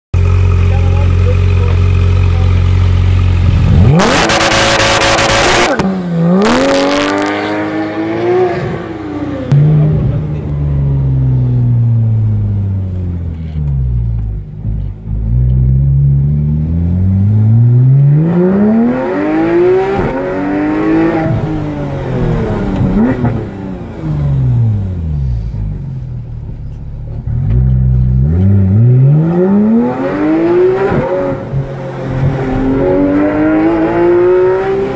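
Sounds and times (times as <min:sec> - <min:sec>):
car engine idling: 0:00.2 - 0:04.0, 0:09.2 - 0:17.3, 0:21.5 - 0:28.8
car engine accelerating and slowing: 0:00.2 - 0:34.9
car engine revving: 0:00.2 - 0:34.9.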